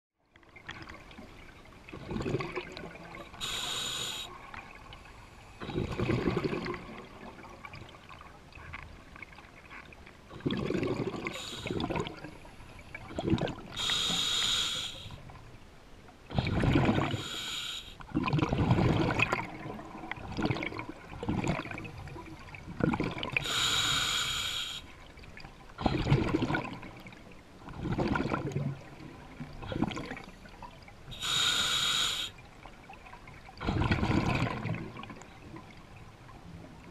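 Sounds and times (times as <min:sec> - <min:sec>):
exhaled air bubbling: 0:01.8 - 0:05.0, 0:05.6 - 0:08.2, 0:10.3 - 0:15.4, 0:16.3 - 0:24.7, 0:25.8 - 0:32.4, 0:33.4 - 0:35.8
regulator hissing inhales: 0:03.4 - 0:04.3, 0:11.4 - 0:11.8, 0:13.8 - 0:15.2, 0:17.1 - 0:18.0, 0:23.4 - 0:24.9, 0:31.2 - 0:32.4.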